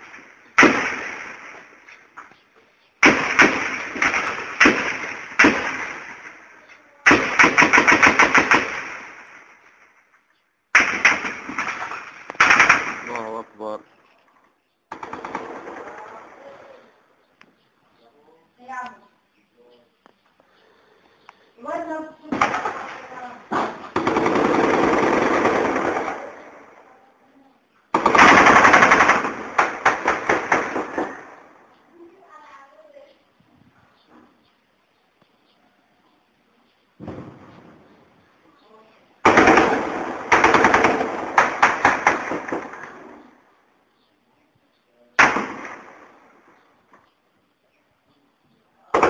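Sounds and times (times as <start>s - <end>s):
gunshots with long echo: 0.0s - 1.9s, 3.0s - 9.8s, 10.7s - 13.4s, 14.9s - 16.3s, 22.3s - 26.8s, 27.9s - 31.6s, 39.2s - 43.4s, 45.2s - 46.7s
automatic gunfire burst: 0.6s - 1.6s, 3.0s - 6.4s, 7.0s - 9.4s, 10.8s - 13.3s, 14.9s - 16.0s, 22.3s - 26.6s, 27.9s - 31.4s, 39.2s - 43.0s.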